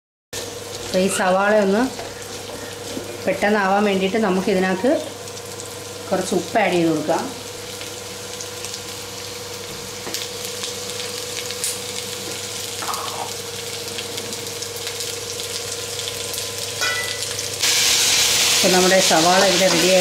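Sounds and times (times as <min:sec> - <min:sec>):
onions sizzling in hot oil: 0:00.4 - 0:20.0.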